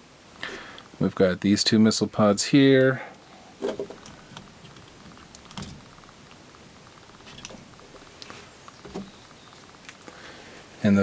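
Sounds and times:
plastic parts clicking together: 0:03.6 - 0:05.8.

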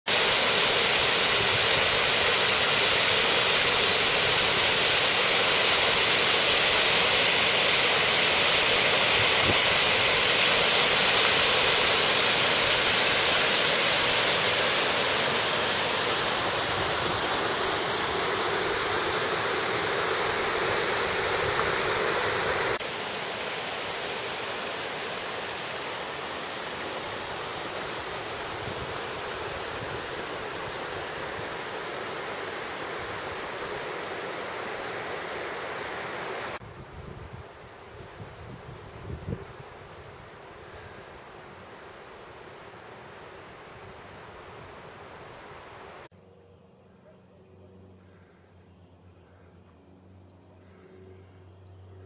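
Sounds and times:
waterfall rushing into pool: 0:00.1 - 0:36.6, 0:44.4 - 0:46.1.

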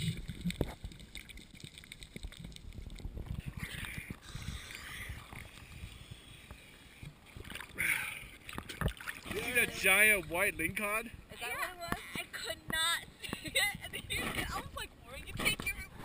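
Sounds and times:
small crackles: 0:00.0 - 0:07.8
water sloshing against camera housing: 0:08.4 - 0:16.0.

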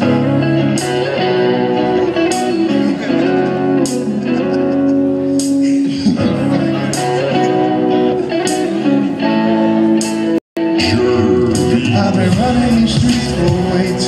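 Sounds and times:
slow beat with sharp hits: 0:05.2 - 0:05.9.

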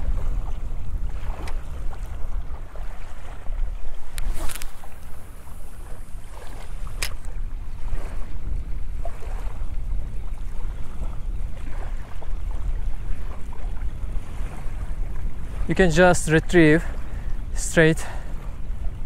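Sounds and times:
wind buffeting microphone: 0:00.0 - 0:19.0
reel bail clicking shut: 0:04.1 - 0:05.1, 0:06.9 - 0:07.4.

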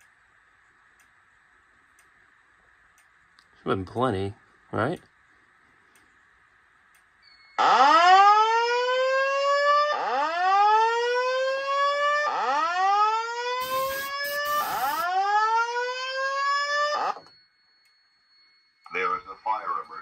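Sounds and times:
rising whoop alarm tone: 0:07.6 - 0:17.2
short burst of noise: 0:13.6 - 0:15.0.

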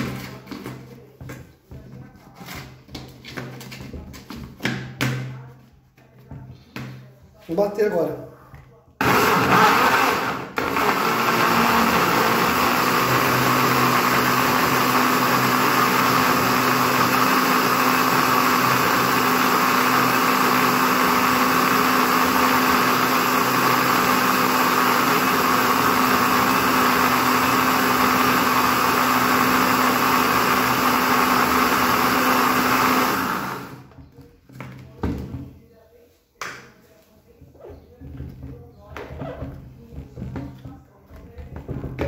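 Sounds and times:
blender running: 0:09.0 - 0:33.9.

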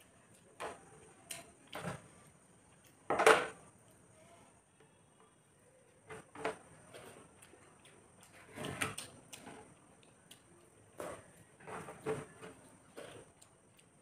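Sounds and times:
eating sounds: 0:05.8 - 0:14.0.

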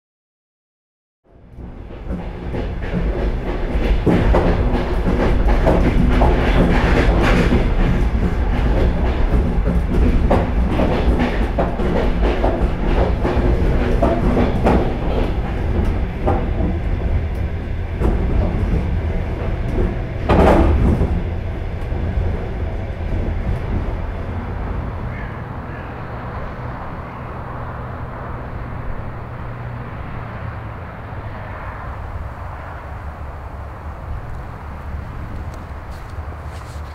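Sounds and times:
train rumble inside carriage: 0:01.3 - 0:36.9
wheels clicking over rail joints: 0:01.5 - 0:36.9.

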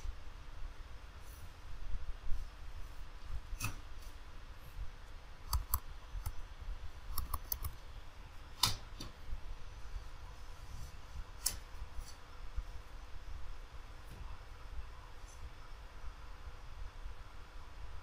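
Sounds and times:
computer mouse clicks: 0:05.5 - 0:06.4, 0:07.1 - 0:07.8.

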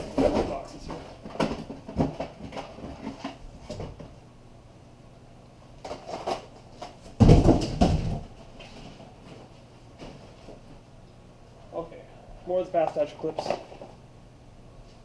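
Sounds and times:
boxes knocking on a counter: 0:00.0 - 0:04.0, 0:07.2 - 0:08.3
heavier thumps: 0:07.1 - 0:08.4.

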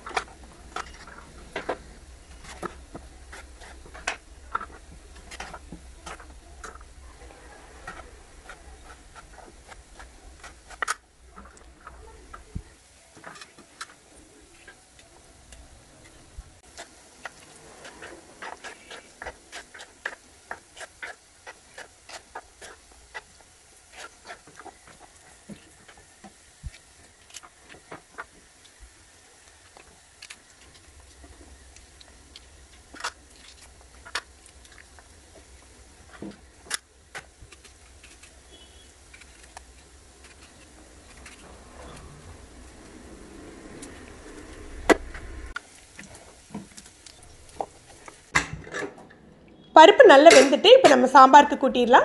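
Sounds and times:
beans snapping: 0:16.7 - 0:43.0.

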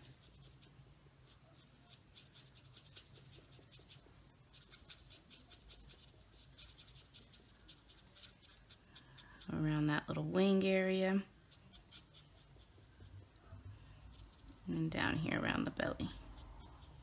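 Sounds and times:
marker scratching on cardstock: 0:00.0 - 0:09.6, 0:11.4 - 0:14.8, 0:16.0 - 0:17.0.

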